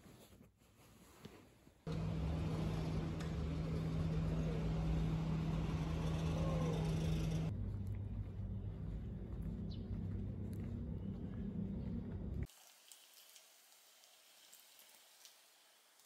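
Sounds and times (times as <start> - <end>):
low hum: 1.9 - 12.5
road noise: 1.9 - 12.5.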